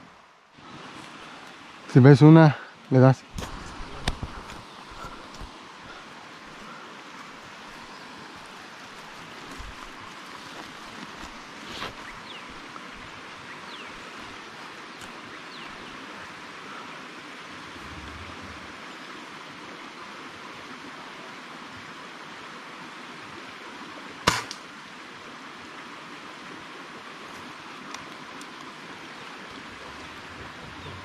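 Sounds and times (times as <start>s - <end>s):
steady background hiss: 0.0s - 31.0s
air rifle shot: 24.2s - 24.6s.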